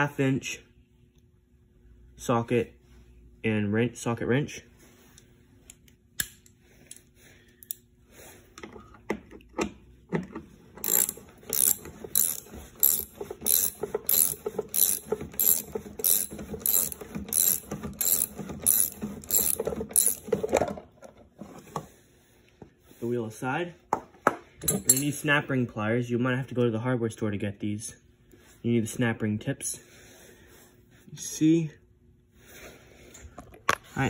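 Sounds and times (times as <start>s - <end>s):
socket wrench ratcheting clicks: 10.8s - 20.2s.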